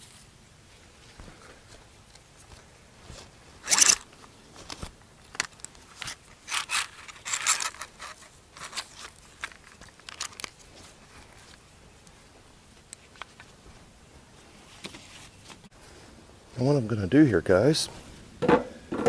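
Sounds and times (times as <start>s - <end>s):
strap webbing zipping and scraping: 3.1s - 4.9s, 5.9s - 10.9s.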